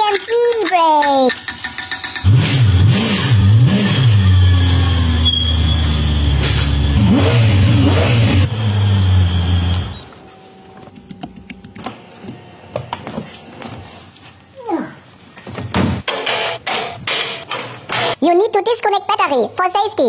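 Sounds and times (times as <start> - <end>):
car engine revving and idling: 2.3 - 9.9.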